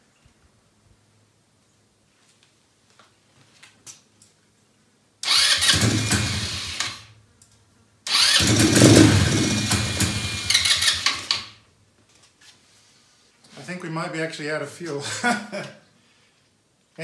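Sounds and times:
quad bike engine starting: 5.2 - 7.1, 8.1 - 11.6.

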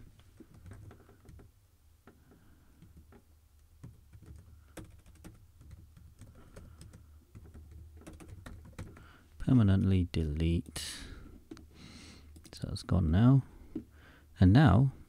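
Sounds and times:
keyboard keystrokes: 3.8 - 9.1.

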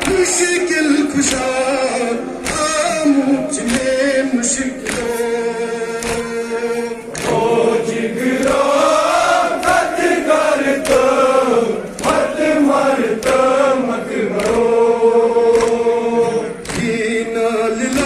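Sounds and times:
men chanting a lament: 0.0 - 18.0
chest-beating slaps: 2.4 - 2.8, 3.6 - 4.1, 4.8 - 5.2, 6.0 - 6.4, 7.1 - 7.6, 8.2 - 8.8, 10.6 - 11.2, 13.1 - 13.5, 14.3 - 14.7, 15.5 - 15.9, 16.6 - 17.0.

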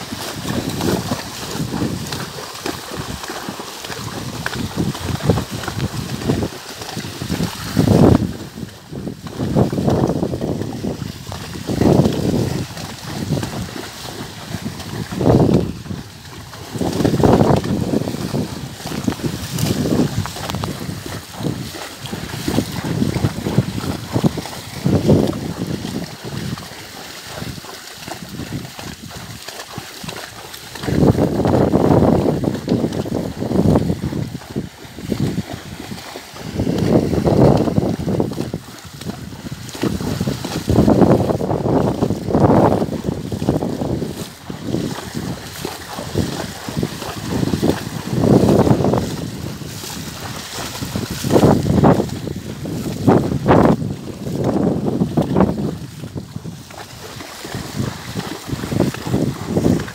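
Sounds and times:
hooves splashing in water: 0.0 - 59.9
wind buffeting microphone: 0.0 - 59.9.

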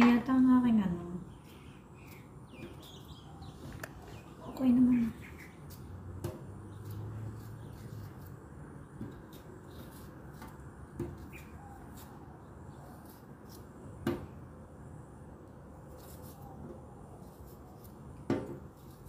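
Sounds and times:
knife scraping ginger skin: 1.2 - 3.6, 4.5 - 13.9, 15.8 - 19.0.

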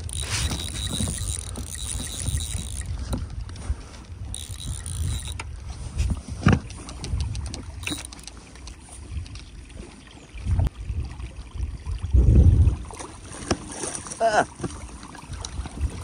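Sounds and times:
fly reel ticking: 0.0 - 3.1, 4.3 - 5.4, 7.8 - 8.4.

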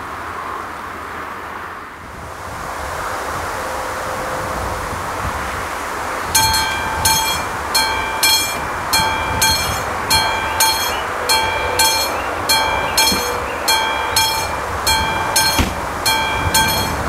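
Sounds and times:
level-crossing bell ringing: 6.3 - 17.0.

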